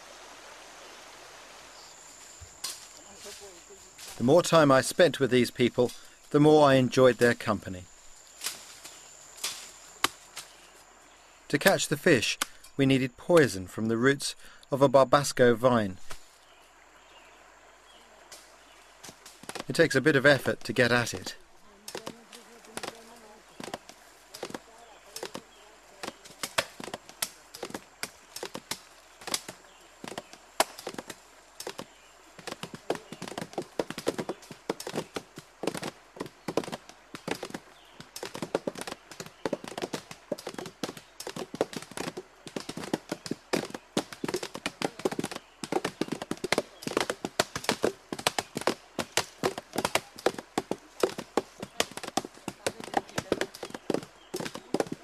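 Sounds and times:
wooden knocks of roots struck: 0:02.5 - 0:03.0, 0:08.4 - 0:10.6, 0:18.3 - 0:19.8, 0:21.9 - 0:55.0.

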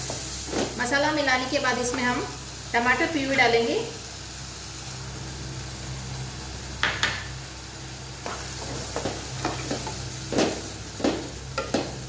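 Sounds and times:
food sizzling in pan: 0:00.0 - 0:12.0.

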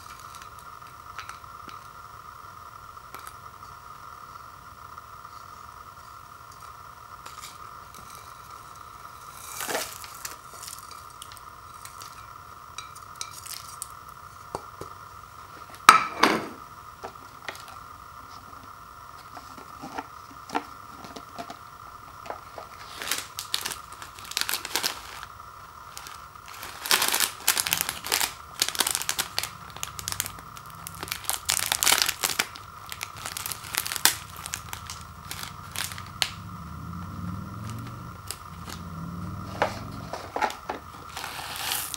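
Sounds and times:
faint steady whine: 0:00.0 - 0:41.9
plastic packet crinkling and tearing: 0:22.7 - 0:25.3, 0:25.9 - 0:36.4, 0:40.4 - 0:41.9.

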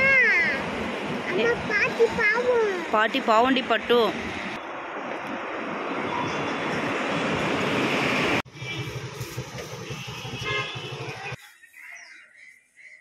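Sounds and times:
low traffic rumble: 0:00.0 - 0:11.4
vehicle passing with rushing noise: 0:03.9 - 0:11.4.

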